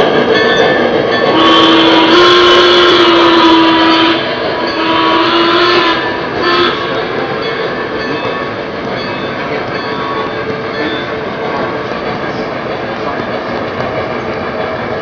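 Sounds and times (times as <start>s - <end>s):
model train running on track: 0.0s - 15.0s
model train steam whistle: 1.3s - 7.1s.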